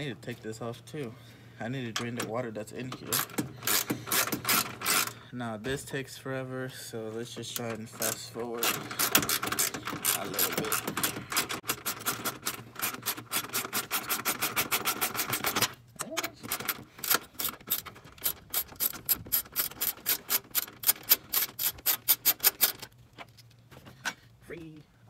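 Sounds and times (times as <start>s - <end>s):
ratchet wrench clicking: 8.6s - 15.3s, 16.5s - 22.9s.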